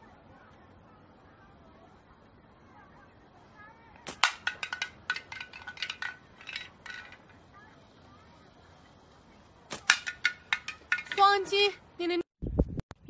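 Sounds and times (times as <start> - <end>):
slingshot snap: 4.0 - 5.0, 9.7 - 11.2
small hard object clattering: 4.0 - 7.4, 9.7 - 11.5.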